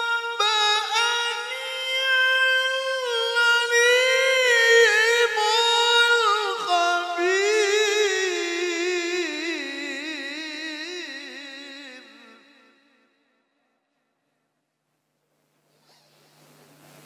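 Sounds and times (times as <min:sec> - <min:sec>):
man reciting melodically: 0:00.0 - 0:13.3.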